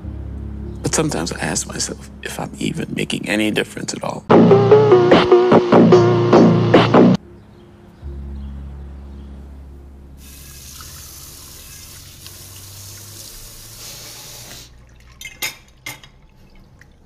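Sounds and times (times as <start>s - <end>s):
low hum: 0.0s - 3.0s, 6.1s - 12.5s.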